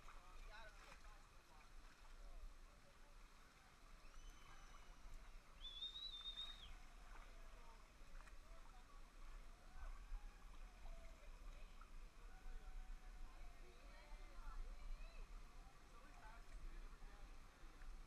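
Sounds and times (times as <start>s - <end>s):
faint distant voices: 0.0s - 18.0s
high whistle-like tone: 5.6s - 6.7s.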